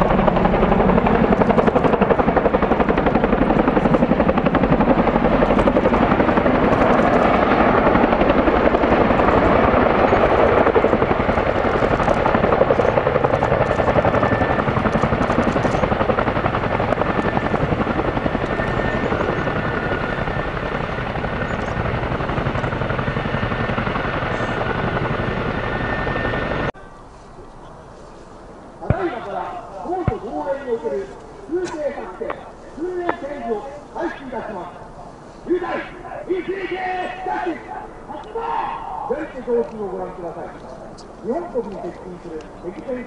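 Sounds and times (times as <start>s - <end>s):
helicopter rotor chop: 0.0s - 26.7s, 28.8s - 43.0s.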